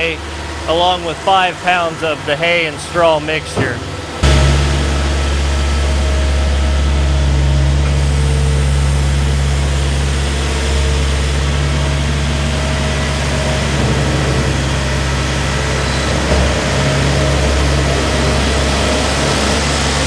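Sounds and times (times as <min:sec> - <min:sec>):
loader engine running: 0:00.0 - 0:20.0.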